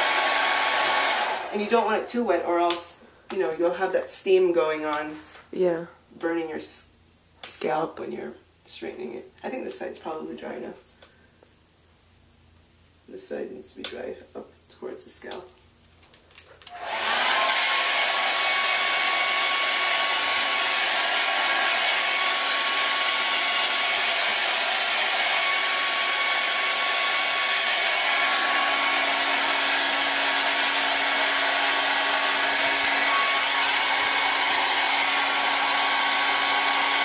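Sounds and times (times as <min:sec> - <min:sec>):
blow dryer blowing: 0:00.0 - 0:02.4, 0:16.7 - 0:37.0.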